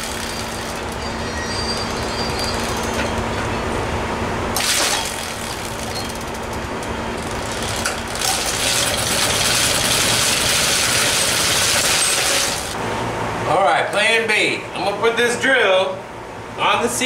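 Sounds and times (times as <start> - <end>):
moped pedals and chain whirring: 0.0 - 3.8, 4.6 - 12.8.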